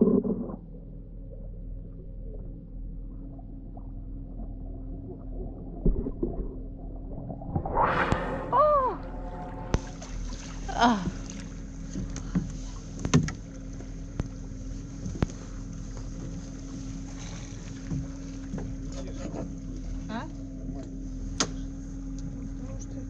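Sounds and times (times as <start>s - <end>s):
brief falling cry: 8.4s - 9.9s
outboard motor idling: 9.9s - 23.0s.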